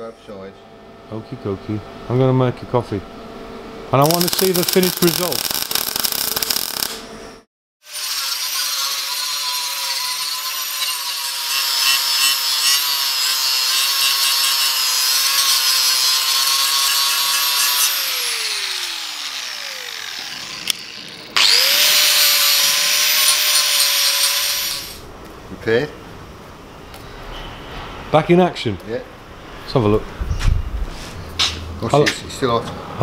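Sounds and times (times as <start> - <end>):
angle grinder whining: 4.0 - 7.1, 7.9 - 25.0.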